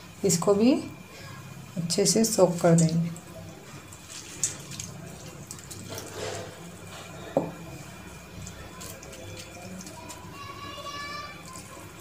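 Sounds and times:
water splashing into bowl: 0:02.6 - 0:10.4
hand squishing wet rice: 0:03.8 - 0:07.0.

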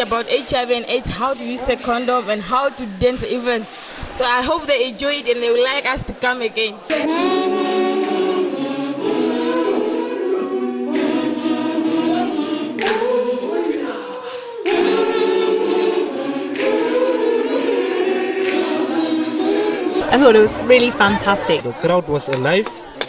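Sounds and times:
group of voices singing: 0:06.5 - 0:23.0.

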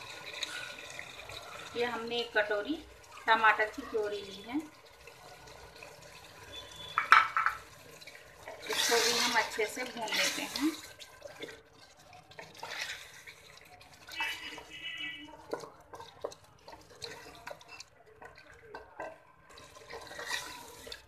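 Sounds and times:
chicken sizzling in oil: 0:00.0 - 0:21.0
wooden spatula scraping pan: 0:08.5 - 0:11.0, 0:15.4 - 0:21.0.

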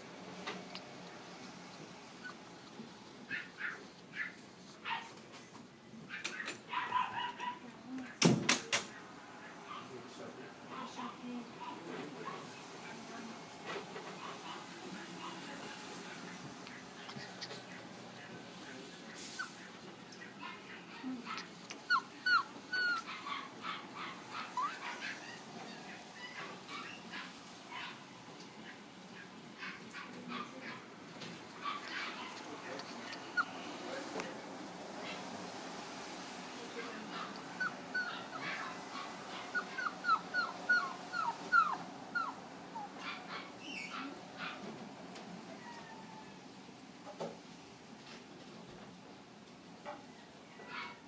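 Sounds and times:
puppy whimpering: 0:02.2 - 0:04.4, 0:20.4 - 0:27.3, 0:31.7 - 0:33.8, 0:37.1 - 0:44.6, 0:45.5 - 0:46.4
puppy yelping: 0:03.3 - 0:05.2, 0:20.3 - 0:28.1, 0:31.6 - 0:33.6, 0:37.1 - 0:44.6
puppy squeaking: 0:20.5 - 0:27.3, 0:31.7 - 0:33.6, 0:37.2 - 0:44.1.

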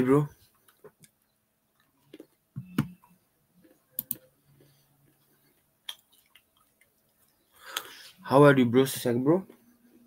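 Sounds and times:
person chewing dry nuts: 0:05.5 - 0:07.9.

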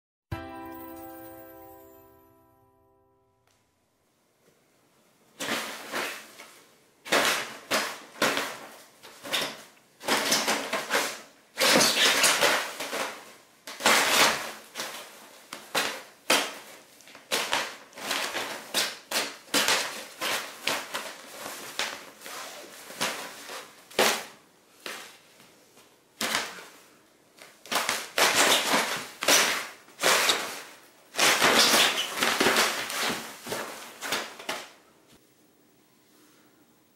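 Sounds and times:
fabric tunnel rustling and crinkling: 0:27.4 - 0:34.8.

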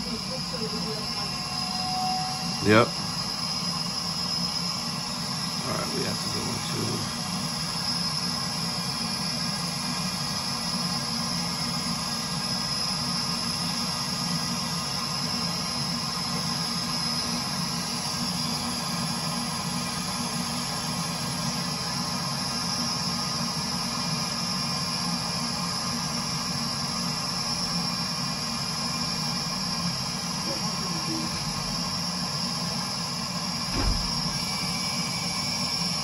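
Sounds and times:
thin high whine: 0:00.0 - 0:08.4.

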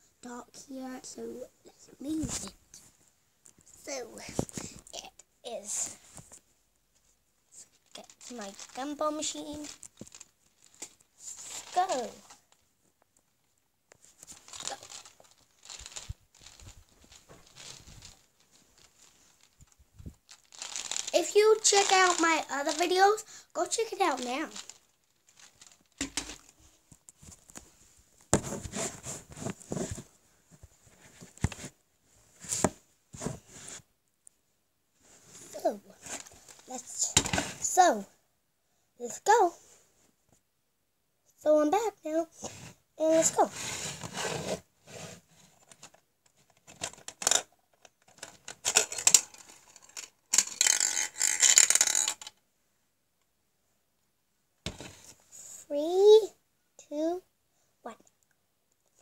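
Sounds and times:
gumball rattling down plastic chute: 0:14.3 - 0:26.5, 0:48.2 - 0:52.3.

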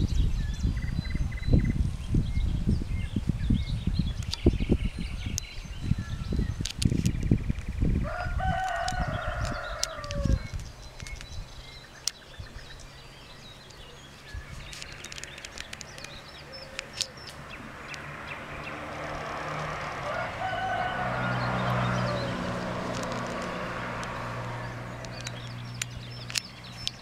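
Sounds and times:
faint clicks and chirps: 0:04.2 - 0:04.5, 0:08.7 - 0:12.3, 0:14.5 - 0:18.1, 0:22.9 - 0:27.0
rooster crowing: 0:08.0 - 0:10.5, 0:20.0 - 0:22.5.

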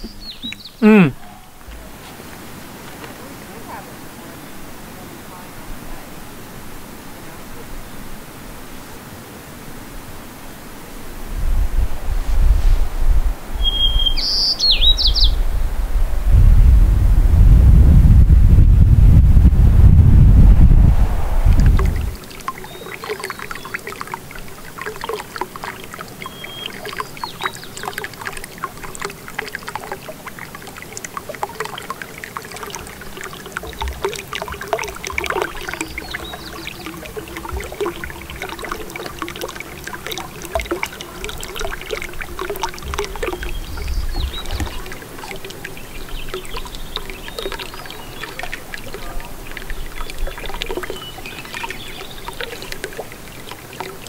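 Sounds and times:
water lapping and splashing: 0:00.0 - 0:15.1, 0:19.4 - 0:54.0
low rumbles: 0:15.5 - 0:22.3.

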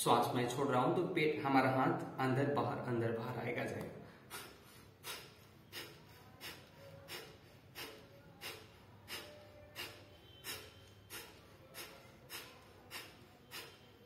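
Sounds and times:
forceful nasal exhalations: 0:04.1 - 0:14.0.

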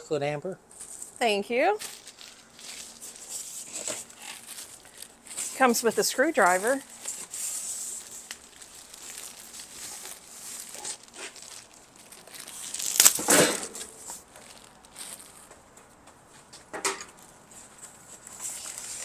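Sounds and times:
rustling and scraping: 0:00.7 - 0:19.0
plastic wrapping crinkling: 0:00.8 - 0:15.6, 0:17.6 - 0:19.0
styrofoam packing rubbing: 0:01.8 - 0:15.3, 0:17.7 - 0:19.0.

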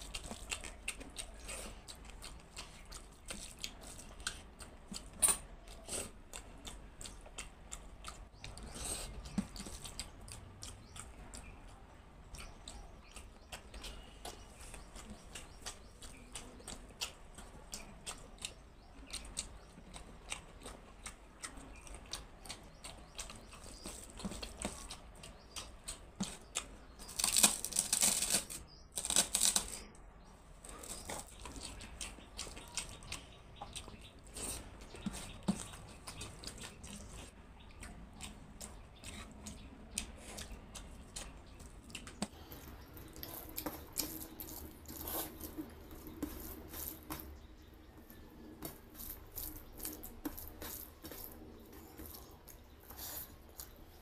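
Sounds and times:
wet chewing sounds: 0:00.0 - 0:54.0
fingers squishing rice on plate: 0:30.6 - 0:54.0.

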